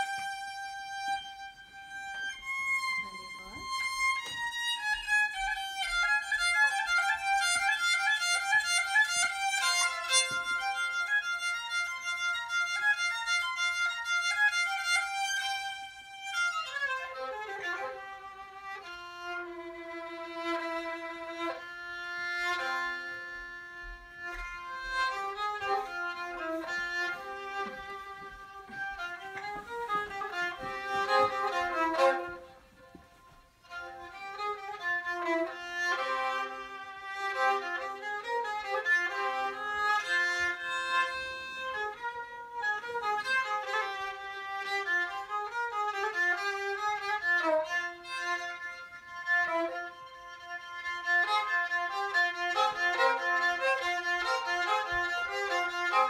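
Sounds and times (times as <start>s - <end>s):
bowed fiddle melody: 0.0s - 56.0s.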